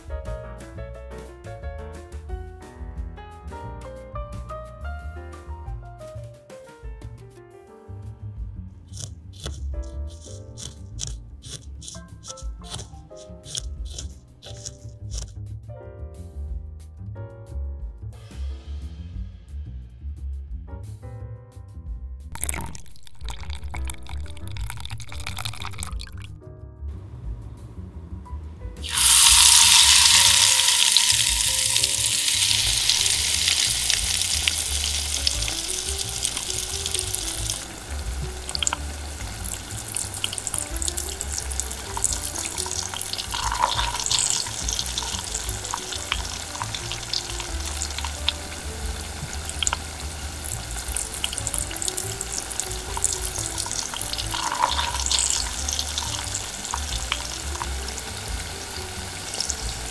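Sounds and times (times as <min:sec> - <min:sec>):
food sizzling in hot oil: 0:08.9 - 0:15.3, 0:22.4 - 0:26.4, 0:28.8 - 0:59.9
oil bubbling and crackling: 0:08.9 - 0:15.3, 0:22.3 - 0:26.4, 0:28.8 - 0:59.9.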